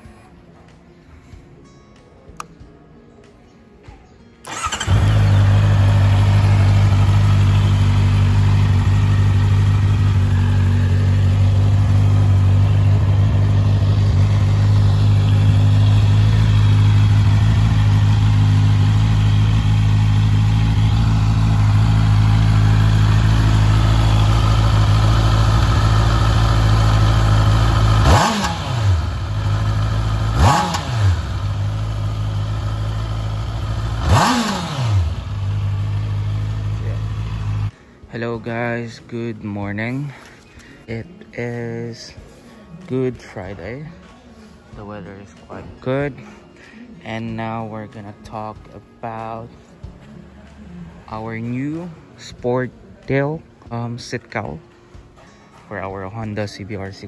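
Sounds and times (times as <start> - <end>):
engine throttle blips: 4.4 - 37.7
motorcycle engine idling: 4.4 - 37.7.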